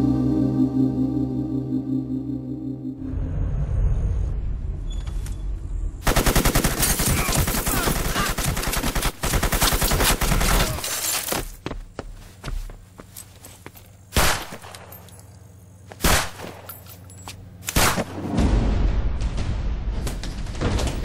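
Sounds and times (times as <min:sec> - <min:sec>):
low rumble: 0:00.0 - 0:06.1
automatic gunfire: 0:06.0 - 0:10.8
single gunshots: 0:14.1 - 0:14.9, 0:16.0 - 0:16.7, 0:17.7 - 0:19.1.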